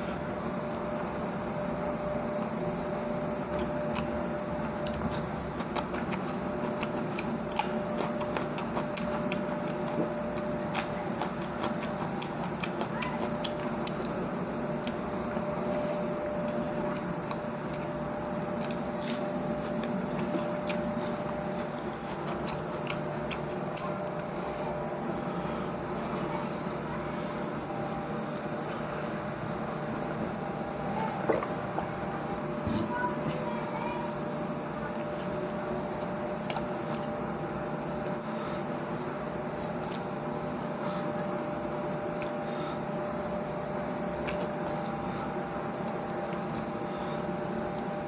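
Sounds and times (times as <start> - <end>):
steady hum: 0.0 - 48.0
wet chewing mouth sounds: 0.8 - 32.6, 34.7 - 48.0.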